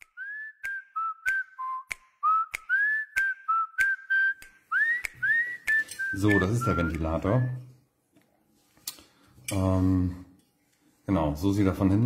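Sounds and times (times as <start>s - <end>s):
sharp rhythmic clicks: 0.0s - 7.1s
whistled tune: 0.0s - 7.8s.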